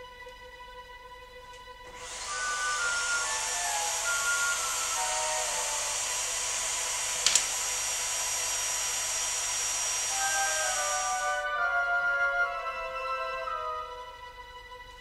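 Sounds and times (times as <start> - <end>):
vacuum cleaner whining: 1.8 - 12.4.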